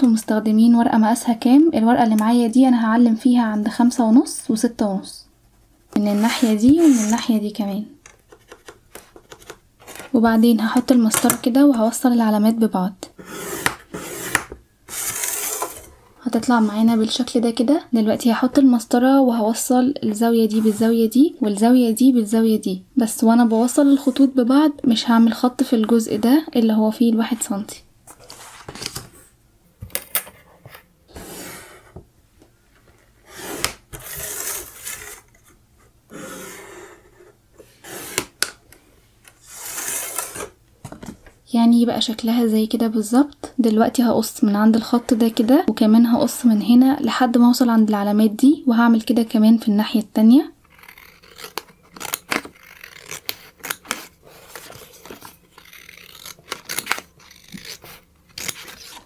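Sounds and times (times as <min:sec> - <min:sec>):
pencil scratching on paper: 0:05.4 - 0:07.2, 0:13.2 - 0:15.7
scissors snipping paper: 0:50.7 - 0:59.0.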